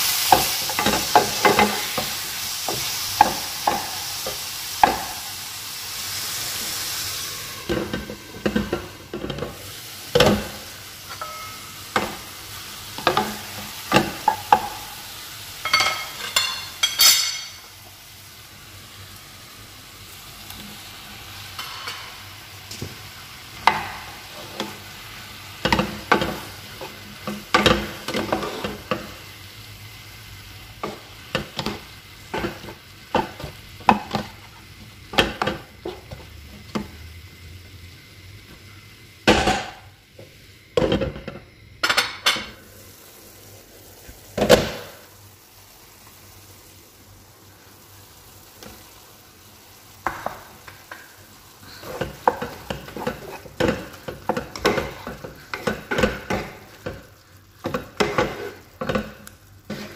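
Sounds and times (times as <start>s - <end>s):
vegetables sizzling in a pan: 0.0s - 59.9s
spatula stirring and scraping: 25.6s - 29.2s, 51.7s - 59.9s.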